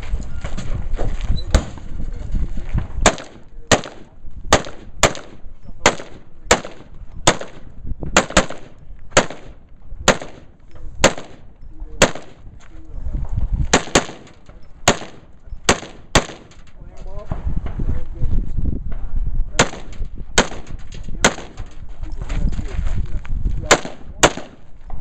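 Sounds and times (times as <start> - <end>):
gunshots with echo: 3.0 - 12.4, 13.7 - 16.5, 19.6 - 21.6, 23.7 - 24.6.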